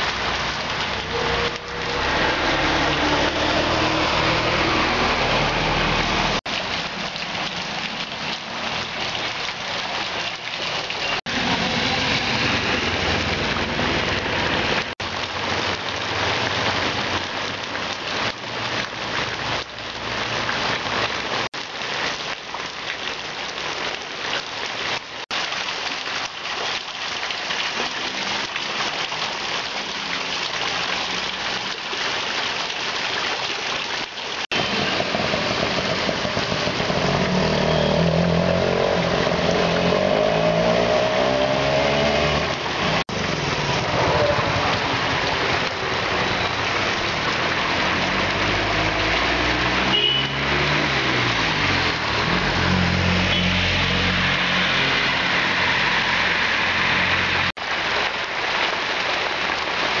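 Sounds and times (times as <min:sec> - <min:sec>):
gutter runoff rushing: 0:00.0 - 1:00.0
heavy rain on a road: 0:00.0 - 1:00.0
passing vehicle engines: 0:01.0 - 0:06.4, 0:34.6 - 0:57.6.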